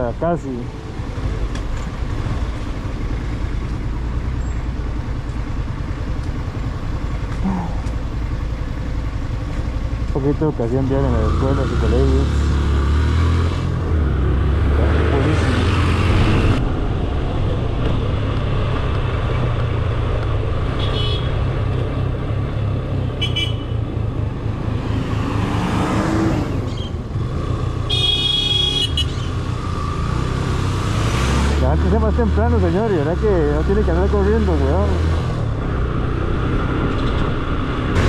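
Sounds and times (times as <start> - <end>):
passing vehicle: 0.0 - 38.0
road and wind noise: 0.0 - 38.0
motorcycle engine running: 0.8 - 13.0.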